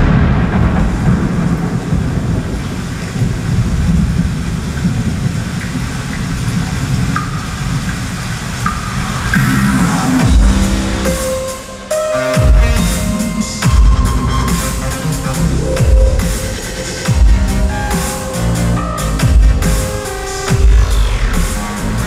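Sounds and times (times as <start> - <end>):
loud steady rumbling: 0.0 - 22.0.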